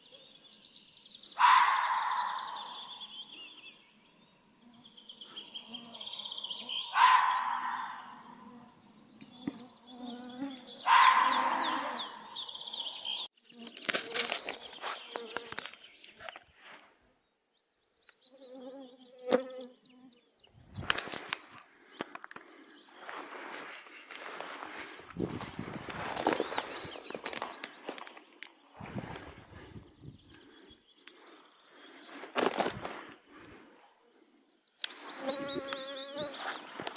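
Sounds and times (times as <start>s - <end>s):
bird chirping: 0.0s - 32.3s, 33.4s - 36.9s
mosquitoes whining: 1.0s - 15.7s, 33.3s - 36.9s
footsteps through wet vegetation: 13.7s - 16.8s, 20.8s - 29.5s
clothing and grass rustling: 13.7s - 17.0s, 20.7s - 30.1s, 31.6s - 33.9s, 35.0s - 36.9s.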